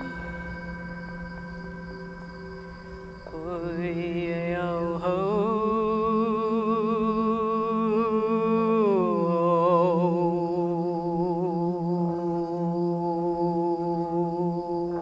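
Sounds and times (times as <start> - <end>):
voice humming wordless notes: 0.0 - 1.0
low drone: 0.0 - 15.0.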